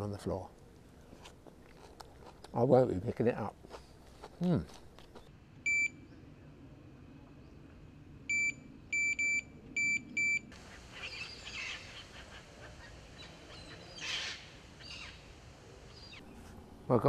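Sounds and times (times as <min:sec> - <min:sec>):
electronic bite alarm beeping: 0:05.7 - 0:06.0, 0:08.3 - 0:10.5.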